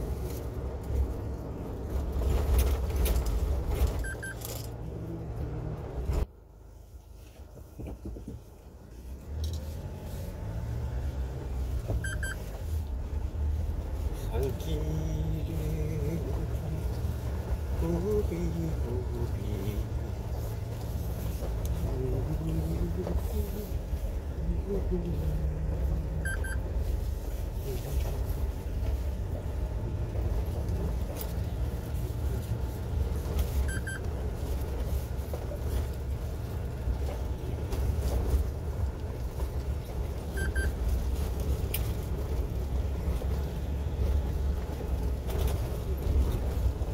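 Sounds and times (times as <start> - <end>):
truck engine rumble: 0.0 - 46.9
high double beep: 4.0 - 4.4, 12.0 - 12.4, 26.2 - 26.6.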